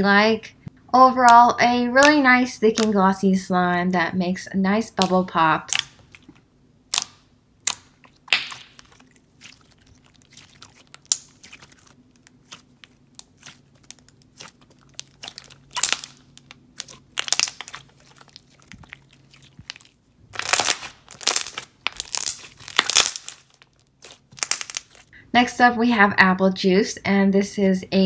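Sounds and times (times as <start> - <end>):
slime squishing: 5.0 - 25.2.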